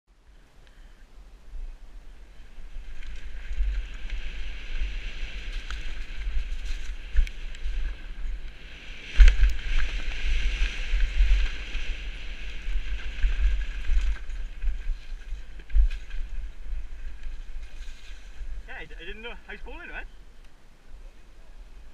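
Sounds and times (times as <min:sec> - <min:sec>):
wind buffeting microphone: 0:01.4 - 0:20.4
bike tyres rolling on dirt: 0:01.7 - 0:20.5
bike knocking and rattling: 0:02.8 - 0:18.5.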